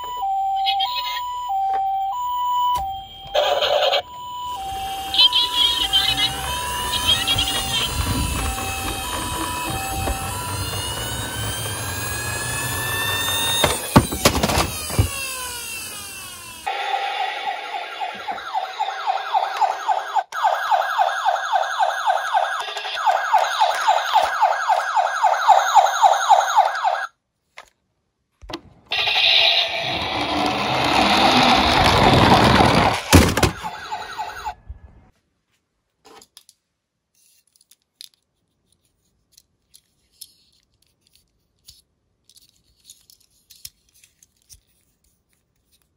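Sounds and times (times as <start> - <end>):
toy siren wailing: 0.0 - 27.1, 28.9 - 34.6
noisy toy sound effect: 3.3 - 27.1, 28.9 - 34.6.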